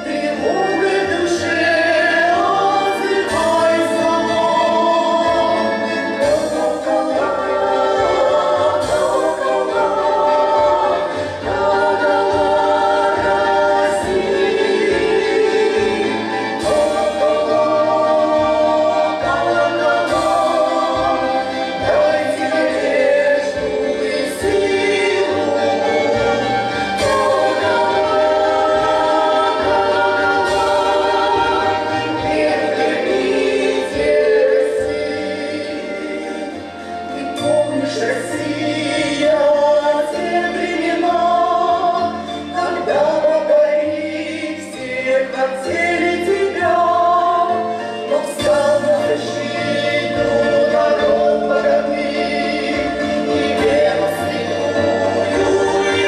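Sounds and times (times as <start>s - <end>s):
women singing in harmony: 0.0s - 56.0s.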